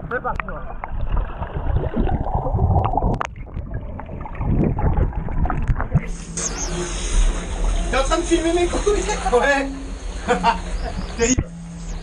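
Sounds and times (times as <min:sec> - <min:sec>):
water sloshing and gurgling: 0:00.0 - 0:11.8
low rumble: 0:00.0 - 0:12.0.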